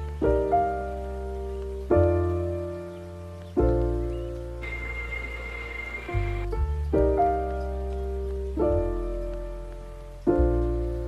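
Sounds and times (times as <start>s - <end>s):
instrumental music sustained chords: 0.0s - 11.0s.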